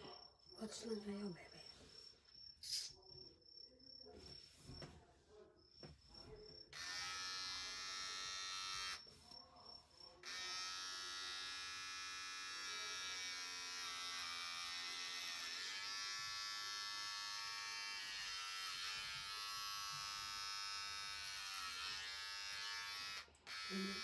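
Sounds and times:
electric hair clippers buzzing: 6.8 - 9.0, 10.2 - 24.0.

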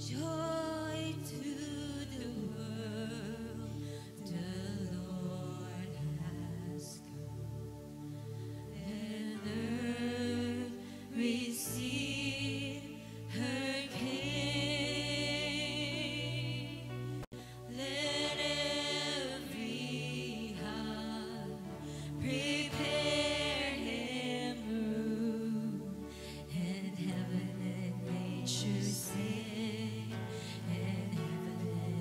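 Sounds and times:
person singing with vibrato: 8.8 - 32.0.

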